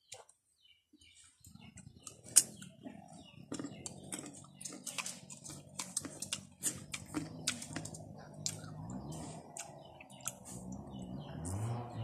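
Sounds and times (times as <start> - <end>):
person crunching hard fruit: 2.0 - 2.8, 3.5 - 10.9.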